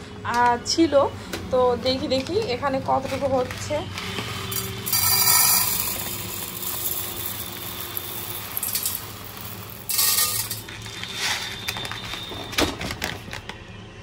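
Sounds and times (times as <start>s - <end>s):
dry rice pouring into container: 4.6s - 11.7s.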